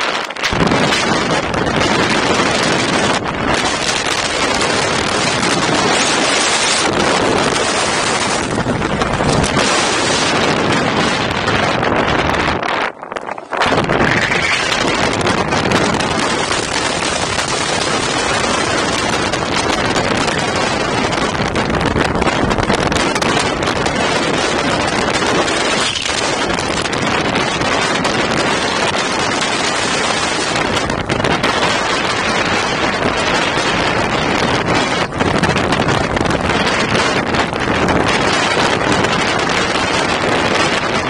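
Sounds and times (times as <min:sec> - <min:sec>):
wind buffeting microphone: 0:00.0 - 0:41.0.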